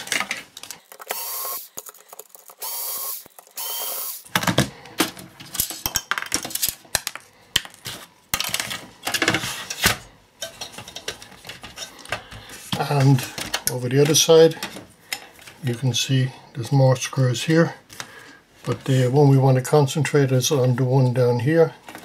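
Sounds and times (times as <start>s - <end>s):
electric screwdriver whirring: 1.0s - 1.8s, 2.6s - 4.3s.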